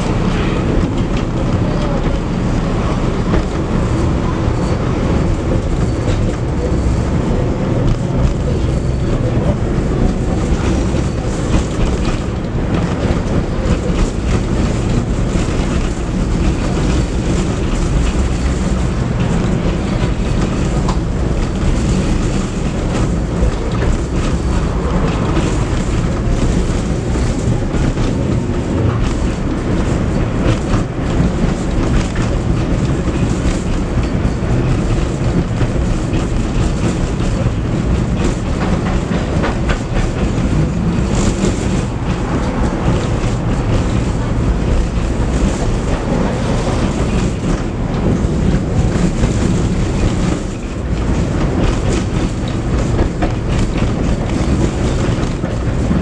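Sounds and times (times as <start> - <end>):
clacks over rail joints: 0.0 - 56.0
tram wheels rumbling on rails: 0.0 - 56.0.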